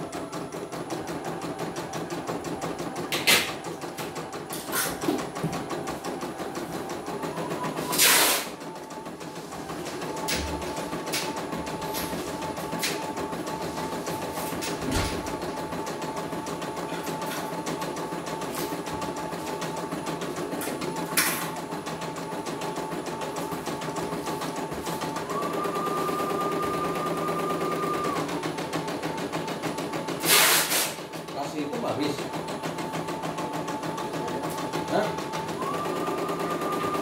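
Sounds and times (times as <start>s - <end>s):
embroidery machine stitching: 0.0s - 37.0s
higher machine whine: 22.7s - 30.1s.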